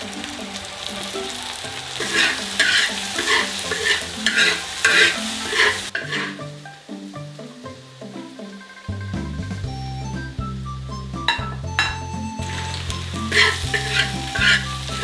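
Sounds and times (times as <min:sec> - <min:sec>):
food sizzling in a wok: 0:00.0 - 0:15.0
metal ladle scraping a wok: 0:02.0 - 0:06.6, 0:11.3 - 0:15.0.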